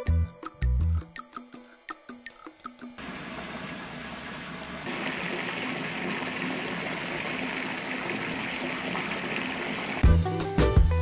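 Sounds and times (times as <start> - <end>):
tap water pouring into bathtub: 3.0 - 10.2.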